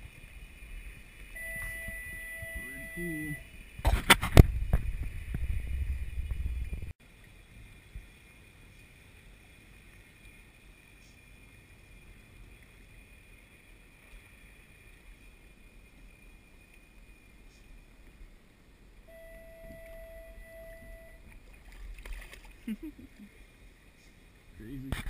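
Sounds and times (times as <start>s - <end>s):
wind rumble and mic handling: 0.0s - 8.2s
wind and water hiss: 0.0s - 25.0s.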